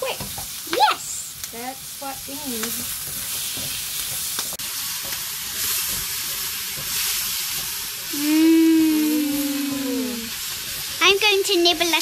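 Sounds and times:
vegetables sizzling in hot oil: 0:00.0 - 0:12.0
person humming: 0:08.1 - 0:10.3.

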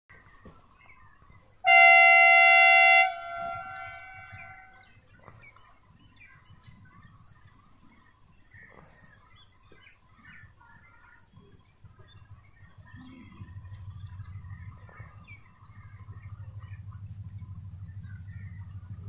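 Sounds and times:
faint birds chirping: 0:00.1 - 0:19.0
locomotive horn blast: 0:01.6 - 0:04.8.

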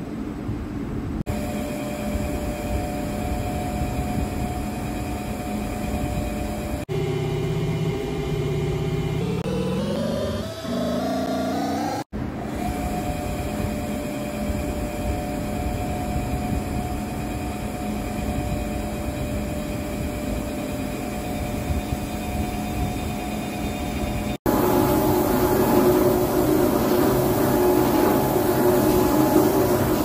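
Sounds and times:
louder machine running: 0:01.3 - 0:30.0
engraving machine humming: 0:06.1 - 0:30.0.

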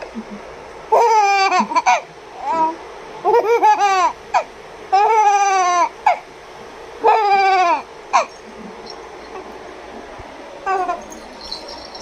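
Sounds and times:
baby laughing and squealing: 0:00.9 - 0:06.2, 0:07.0 - 0:09.5, 0:10.7 - 0:12.0.

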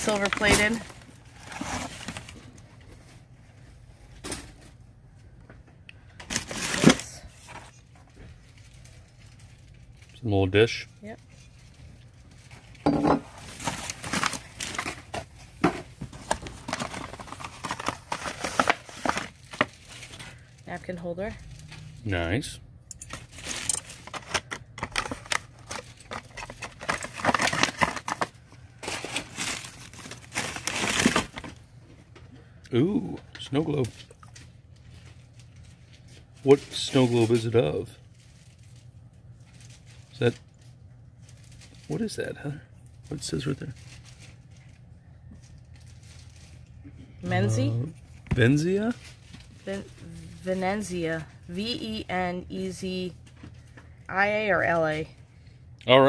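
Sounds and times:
paper and plastic crinkling: 0:00.0 - 0:03.3, 0:06.1 - 0:22.0, 0:23.1 - 0:31.6, 0:33.5 - 0:42.3, 0:42.9 - 0:51.0, 0:53.2 - 0:54.0
paper rustling: 0:16.0 - 0:20.4, 0:23.1 - 0:31.5.

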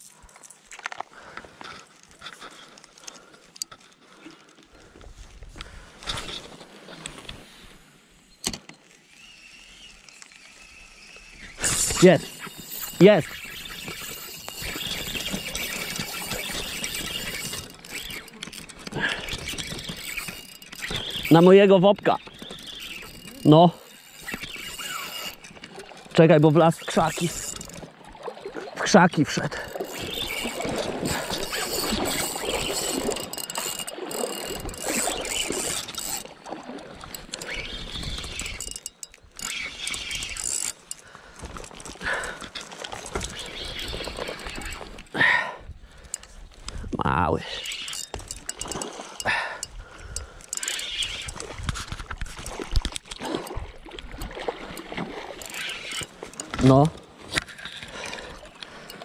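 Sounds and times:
reel squeals: 0:07.2 - 0:45.4, 0:47.3 - 0:59.0
fishing reel whirring: 0:08.9 - 0:28.6, 0:29.5 - 0:45.1, 0:47.4 - 0:59.0.

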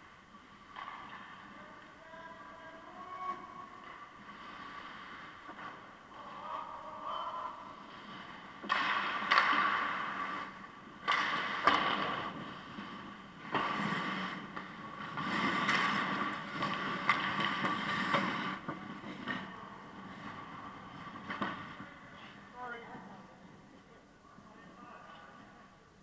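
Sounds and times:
hockey sticks and puck clacking: 0:00.3 - 0:22.0
skate blades scraping ice: 0:02.8 - 0:06.4, 0:07.5 - 0:22.5.

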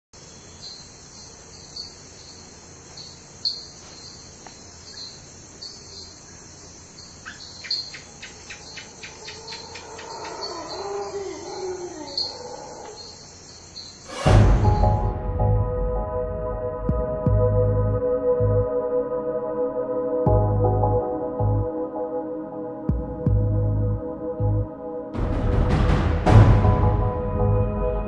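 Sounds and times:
crickets chirping: 0:00.2 - 0:15.0
bird calling: 0:07.1 - 0:14.1.

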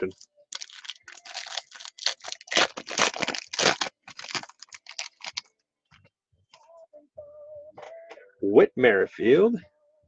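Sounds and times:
foil wrapper crinkling and tearing: 0:00.5 - 0:05.5.

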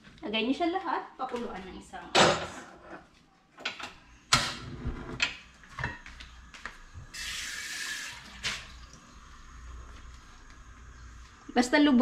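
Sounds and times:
gas hissing: 0:07.1 - 0:11.5.

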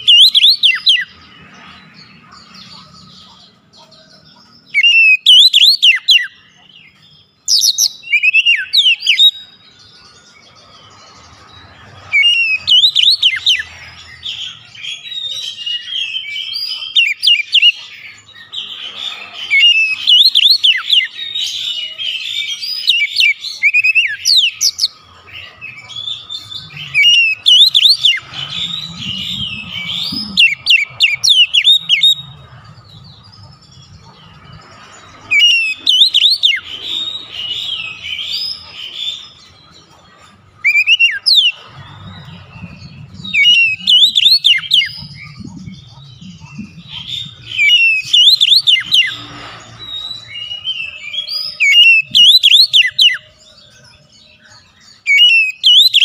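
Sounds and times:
bird singing whistled phrases: 0:00.0 - 0:01.1, 0:04.7 - 0:06.4, 0:07.5 - 0:09.6, 0:12.2 - 0:13.7, 0:19.5 - 0:25.0, 0:25.9 - 0:32.2, 0:35.3 - 0:38.6, 0:40.6 - 0:41.6, 0:42.6 - 0:49.3, 0:49.9 - 0:53.3, 0:55.0 - 0:56.0.

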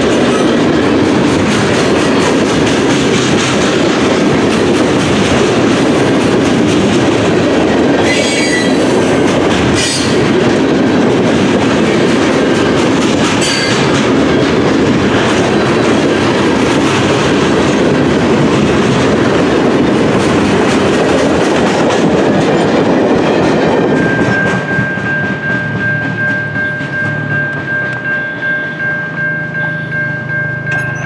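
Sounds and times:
train wheels rolling over rails: 0:00.0 - 0:31.0
steady high tone: 0:23.8 - 0:31.0.

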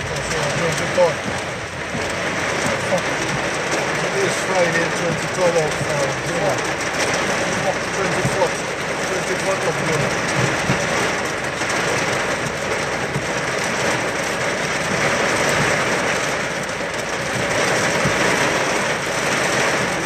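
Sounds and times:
heavy rain on car roof: 0:00.0 - 0:20.0.

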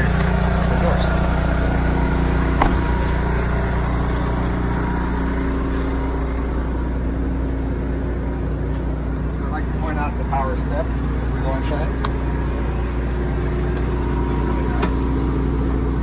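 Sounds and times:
generator engine hum: 0:00.0 - 0:16.0
door shutting thump: 0:02.5 - 0:03.4.

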